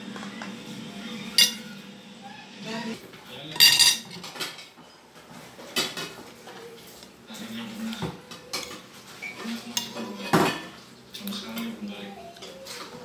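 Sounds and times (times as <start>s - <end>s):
cutlery clinking on ceramic plate: 1.4s - 1.6s, 3.6s - 4.7s.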